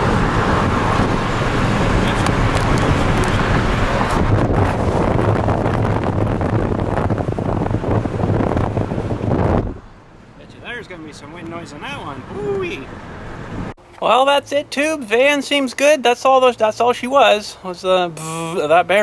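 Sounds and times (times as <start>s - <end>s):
wind buffeting microphone: 0.0s - 13.8s
road and tyre noise in car: 0.0s - 19.0s.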